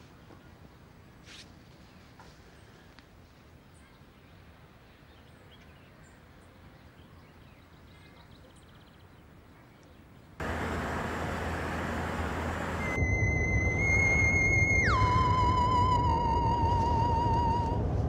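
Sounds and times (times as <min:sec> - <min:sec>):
car driving traffic noise: 0:10.4 - 0:13.9, 0:15.3 - 0:18.0.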